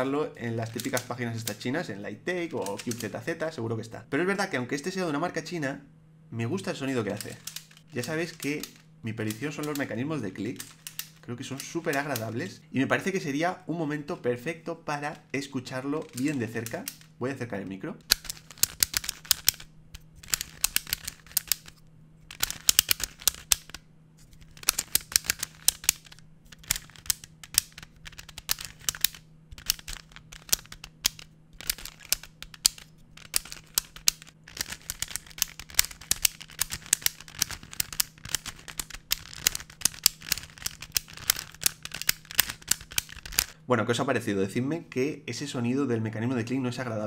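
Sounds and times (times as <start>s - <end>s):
puzzle clicking as turned: 0.0s - 1.7s, 2.5s - 3.3s, 6.9s - 12.4s, 16.0s - 17.2s, 18.0s - 43.6s.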